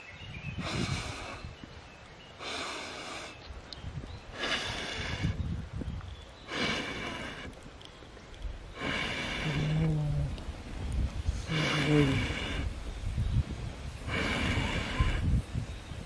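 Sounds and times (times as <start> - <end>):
air blown through tube: 14.0 - 15.7.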